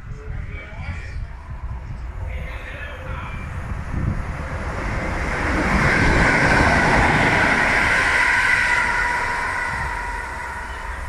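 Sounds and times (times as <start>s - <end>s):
train wheels rushing on rails: 0.7s - 11.0s
high electric whine: 6.0s - 11.0s.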